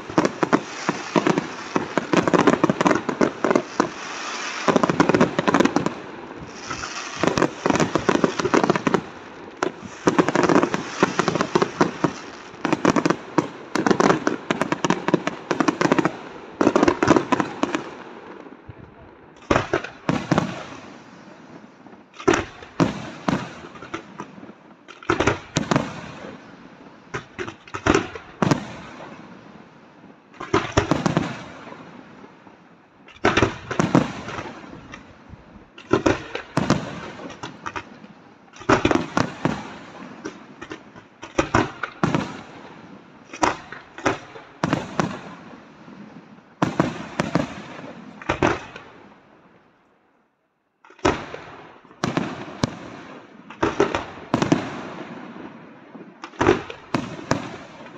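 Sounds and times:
firework bangs with rumbling echo: 0:00.0 - 0:21.2, 0:22.0 - 0:29.4, 0:30.4 - 0:32.1, 0:33.1 - 0:38.0, 0:38.6 - 0:49.1.

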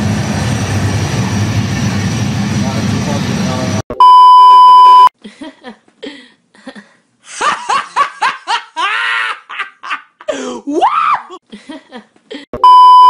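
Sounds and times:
test-tone beep: 0:03.9 - 0:05.1, 0:12.6 - 0:13.0
young woman laughing: 0:05.2 - 0:12.5.

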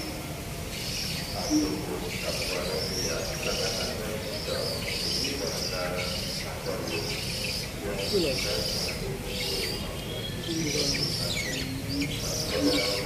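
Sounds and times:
aviary birds chattering and chirping: 0:00.0 - 0:13.0.

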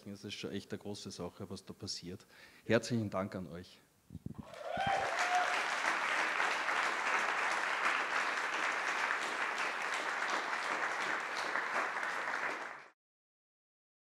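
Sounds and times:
audience applause: 0:04.4 - 0:13.0.

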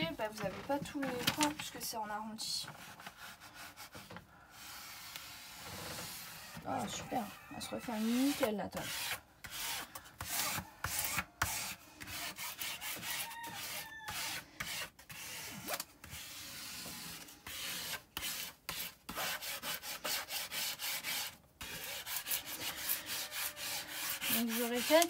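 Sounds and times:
dry scratchy rubbing strokes: 0:02.0 - 0:25.0.

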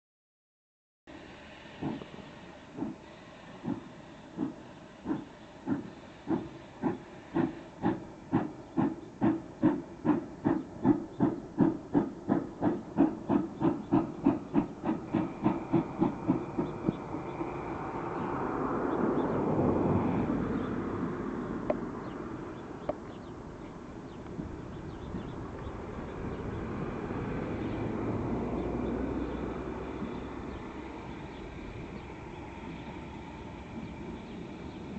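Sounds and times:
rushing hiss: 0:01.1 - 0:18.7
steam locomotive chuffing: 0:01.1 - 0:20.7, 0:21.6 - 0:34.9.

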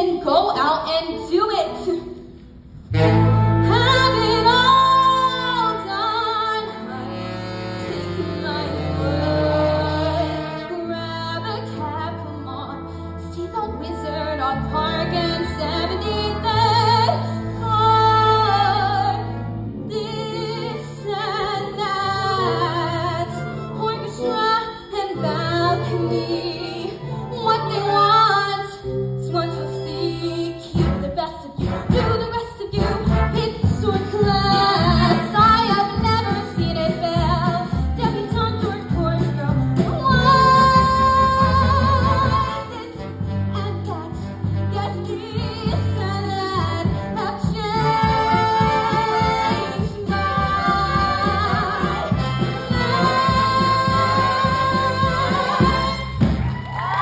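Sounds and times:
pit band with keyboard: 0:02.8 - 0:05.4, 0:44.2 - 0:57.0
woman singing with vibrato: 0:03.2 - 0:07.2, 0:07.8 - 0:12.7, 0:19.9 - 0:56.2.

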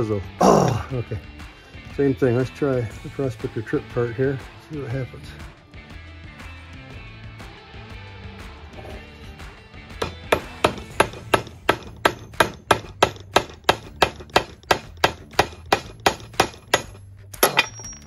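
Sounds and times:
hammer striking metal stamp: 0:10.0 - 0:18.0.

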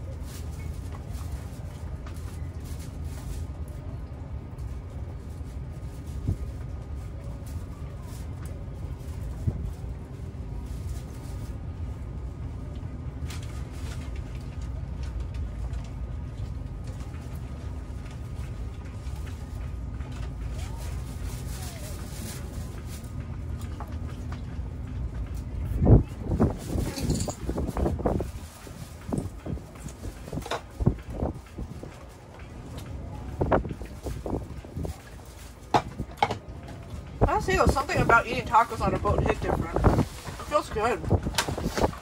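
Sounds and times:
wind buffeting microphone: 0:17.0 - 0:42.0.

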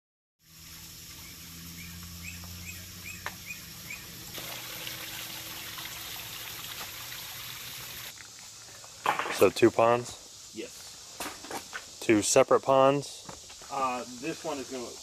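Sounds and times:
waterfall trickling into pond: 0:00.4 - 0:08.1
bird chirping: 0:01.1 - 0:04.3.

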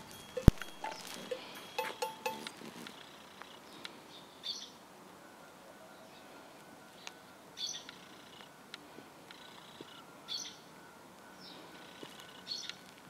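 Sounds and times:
bird chirping: 0:00.0 - 0:04.8, 0:09.3 - 0:12.9.

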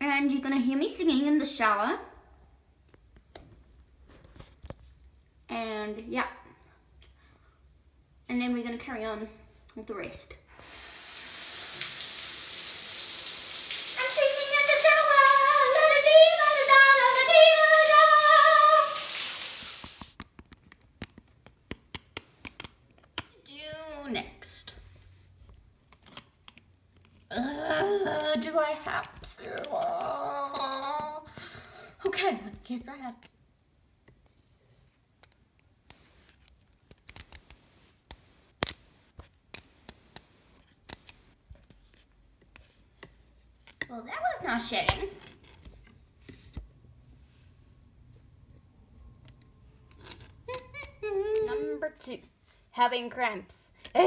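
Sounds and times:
shower spraying water: 0:10.6 - 0:20.2
girl singing: 0:14.0 - 0:19.1.

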